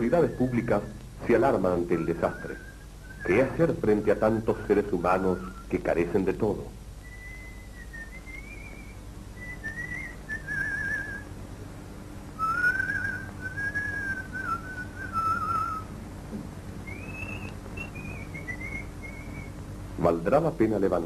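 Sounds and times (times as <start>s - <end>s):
steady low hum: 0.0s - 21.0s
person whistling a melody: 7.1s - 11.2s.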